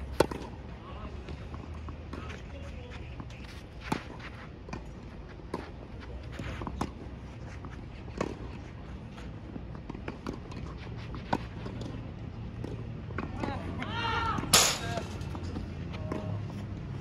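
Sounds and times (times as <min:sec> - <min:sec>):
players' footsteps: 0:00.1 - 0:17.0
rackets striking tennis ball: 0:14.2 - 0:16.3.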